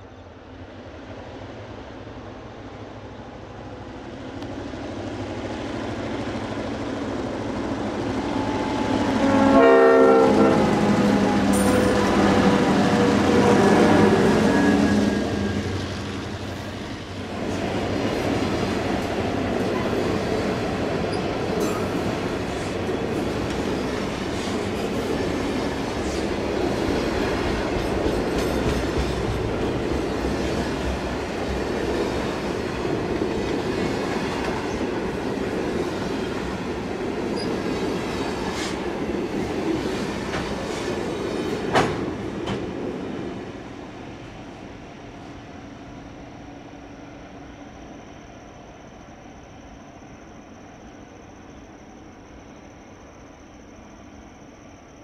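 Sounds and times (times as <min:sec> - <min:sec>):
train wheels rumbling on track: 0:00.0 - 0:55.0
rail clicks: 0:03.6 - 0:44.4.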